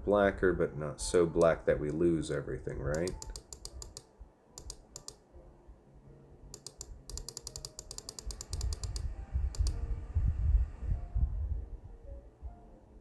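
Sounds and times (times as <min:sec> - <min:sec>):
quick light clicks: 0:02.9 - 0:05.2, 0:06.6 - 0:09.8
low rumble: 0:08.7 - 0:12.9.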